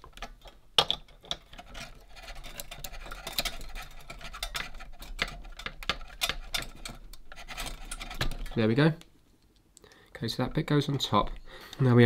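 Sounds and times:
pliers clicking and scraping metal: 0.0 - 8.7.

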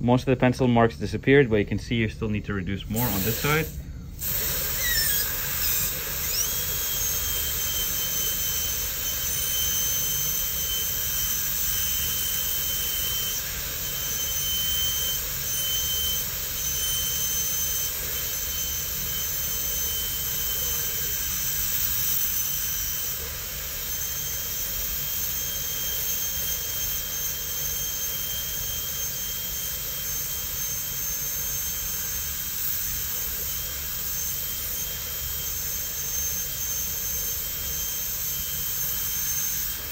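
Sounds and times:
dental drill whining: 2.8 - 39.9
water spray hissing: 3.0 - 6.5.

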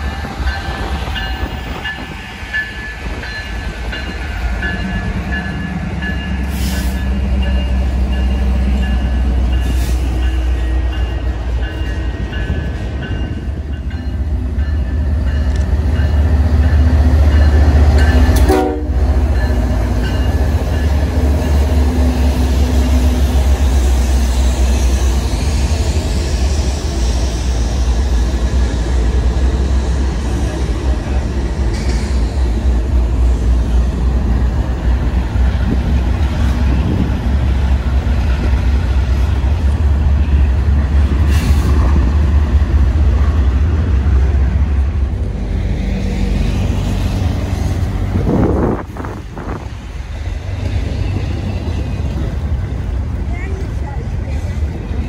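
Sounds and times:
freight train rumble: 0.0 - 55.0
locomotive horn: 18.2 - 19.2.

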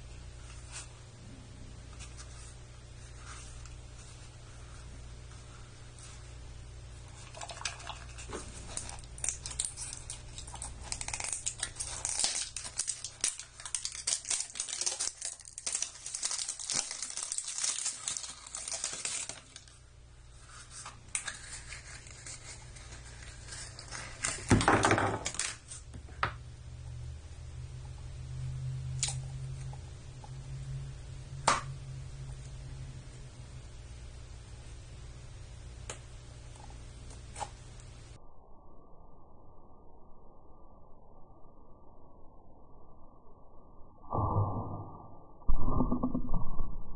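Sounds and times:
plastic capsule rustling: 7.3 - 19.7
plastic shrink wrap crackling: 7.3 - 19.8, 20.6 - 25.8.

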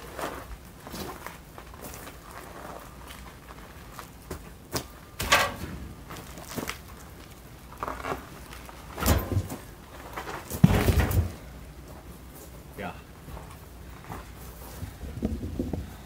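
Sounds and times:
footsteps crunching on gravel: 0.0 - 10.8, 13.2 - 14.8
log scraping on gravel: 5.6 - 11.4
heavy log thuds: 10.5 - 11.5.

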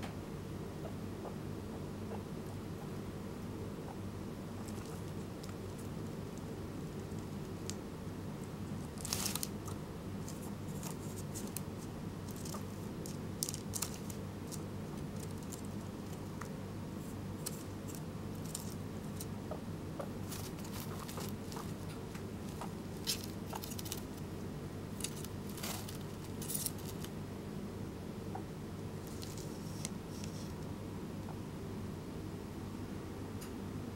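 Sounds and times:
steady low hum: 0.0 - 33.9
guinea pig rustling on paper: 4.6 - 7.8, 8.4 - 19.4, 20.1 - 27.2, 29.0 - 30.6.

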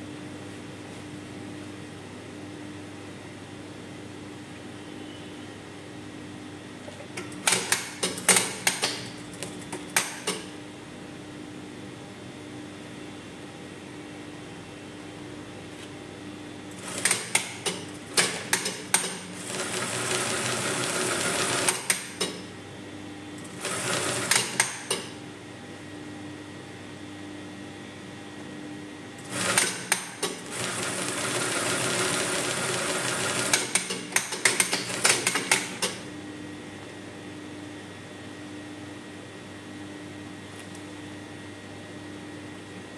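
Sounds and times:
sewing machine stitching: 18.2 - 22.1, 29.2 - 35.8.

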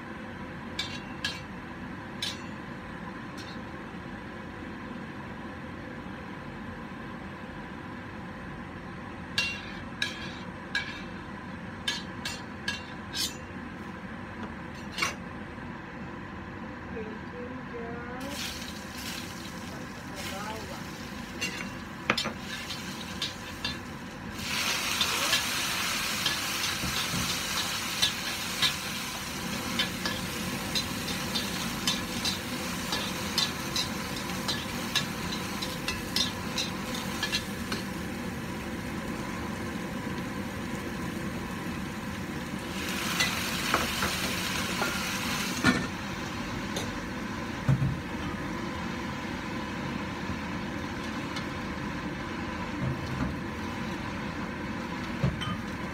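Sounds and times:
vegetables sizzling in a wok: 9.2 - 14.0, 18.2 - 55.9.

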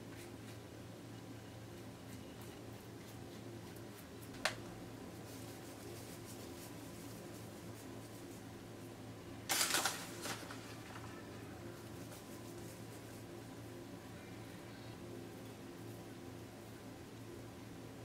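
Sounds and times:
faint steady hum: 0.0 - 18.0
crinkling rustle: 9.5 - 11.2.

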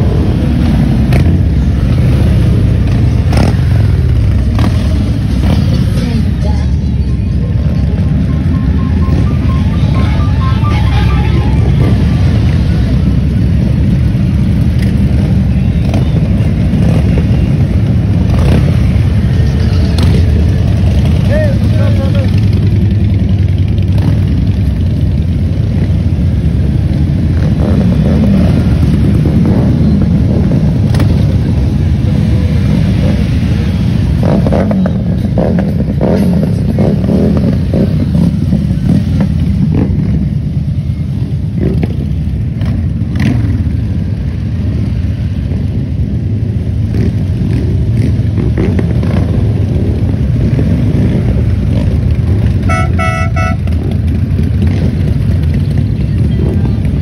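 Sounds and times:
motorcycles riding past: 0.0 - 57.0
motorcycle engine revs: 0.3 - 6.2.

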